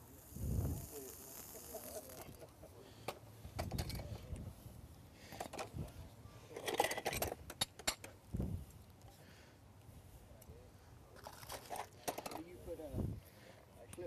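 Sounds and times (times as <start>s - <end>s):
metal tools clinking: 6.6s - 8.1s.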